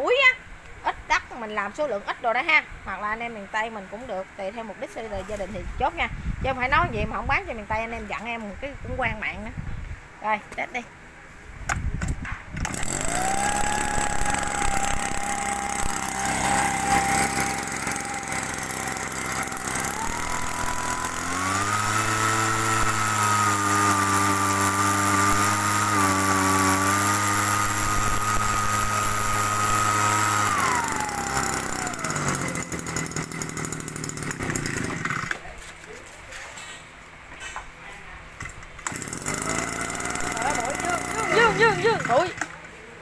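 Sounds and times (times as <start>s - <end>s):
two-stroke blower engine revving: 12.6s - 35.4s, 38.8s - 42.6s.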